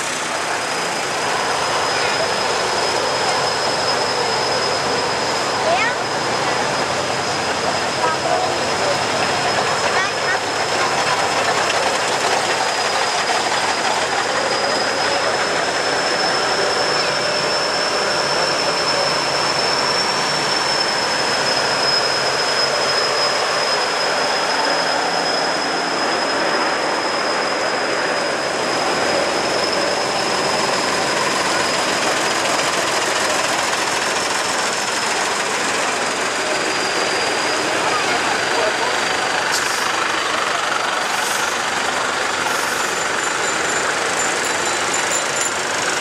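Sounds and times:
diesel engines: 0:00.0 - 0:46.0
tyre hiss on wet road: 0:40.9 - 0:43.0.

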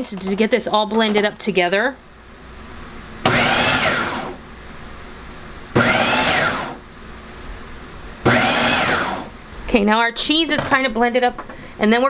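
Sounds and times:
food processor chopping: 0:03.2 - 0:04.4, 0:05.8 - 0:06.8, 0:08.2 - 0:09.3.

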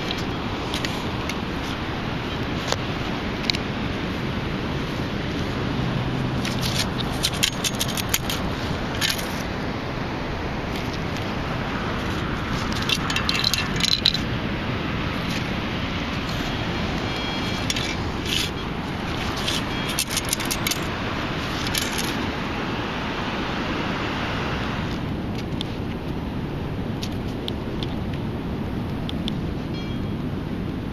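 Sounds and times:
steady background hiss: 0:00.0 - 0:30.9
sand rattling in metal scoop: 0:06.5 - 0:09.4, 0:12.1 - 0:14.3, 0:17.5 - 0:20.9, 0:21.5 - 0:22.2.

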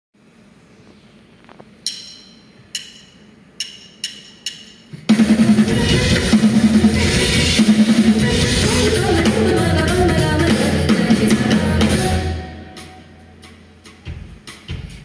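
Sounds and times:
drum kit: 0:01.7 - 0:15.0
ringing percussion strikes: 0:01.8 - 0:09.4
band playing loud: 0:04.9 - 0:15.0.

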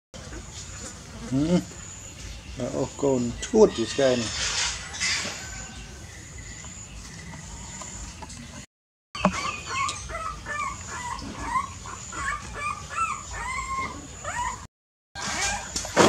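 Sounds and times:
puppies whimpering: 0:09.2 - 0:15.6.

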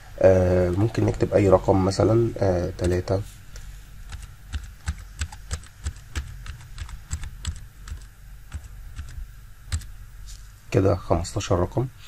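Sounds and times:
computer keyboard typing: 0:02.6 - 0:03.2, 0:04.0 - 0:10.0.

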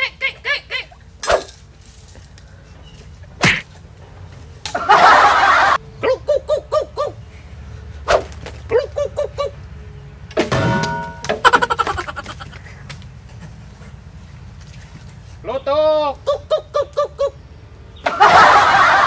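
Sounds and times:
sharp smacks: 0:03.4 - 0:03.7.

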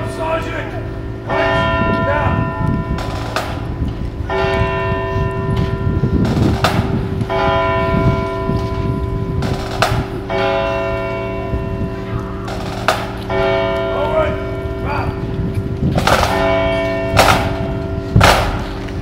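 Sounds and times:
church bell tolling: 0:00.0 - 0:15.4, 0:16.2 - 0:18.8.

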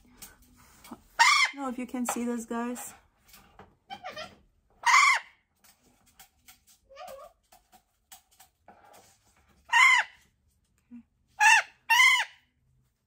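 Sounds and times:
parrot squawking: 0:01.1 - 0:01.6, 0:03.9 - 0:05.4, 0:09.6 - 0:10.3, 0:11.4 - 0:12.5.

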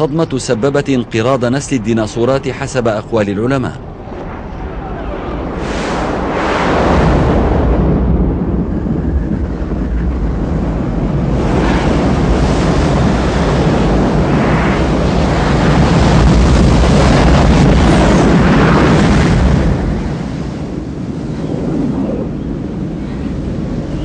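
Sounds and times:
low rumbling blast: 0:00.5 - 0:24.0.

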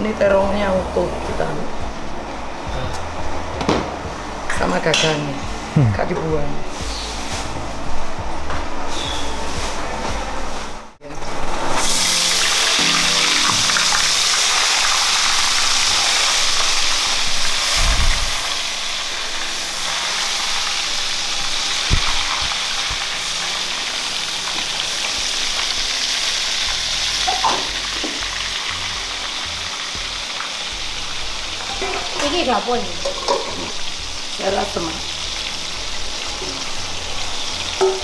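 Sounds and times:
eggplant sizzling in hot oil: 0:11.3 - 0:38.0.

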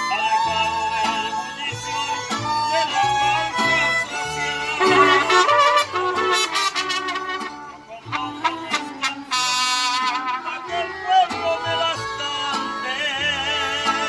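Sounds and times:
strummed guitar chords: 0:00.0 - 0:14.0
violins playing melody: 0:00.0 - 0:14.0
deep plucked bass notes: 0:04.8 - 0:07.5.

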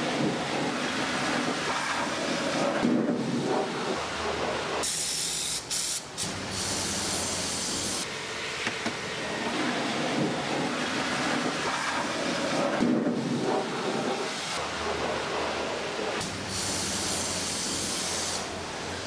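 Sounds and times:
steady background noise: 0:00.0 - 0:19.0
spray gun hissing: 0:04.8 - 0:08.1, 0:16.2 - 0:18.5.

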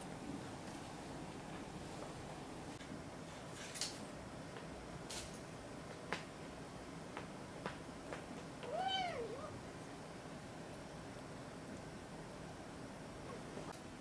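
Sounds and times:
kitten meowing: 0:08.7 - 0:09.5.

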